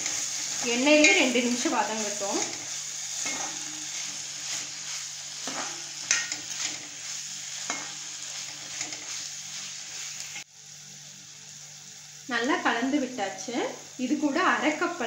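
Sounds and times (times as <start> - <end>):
spatula scraping a pan: 0.0 - 10.4
vegetables sizzling in hot oil: 0.0 - 15.0.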